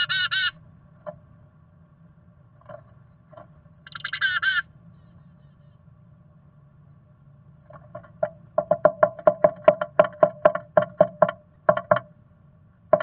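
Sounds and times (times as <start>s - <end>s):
chickadee calling: 0.0s - 0.6s, 3.8s - 5.9s.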